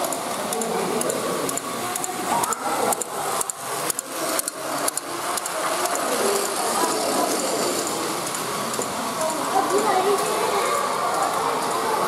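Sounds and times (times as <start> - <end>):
plastic toy train clicks: 0.0 - 12.0
toy trains whirring and clattering: 0.0 - 12.0.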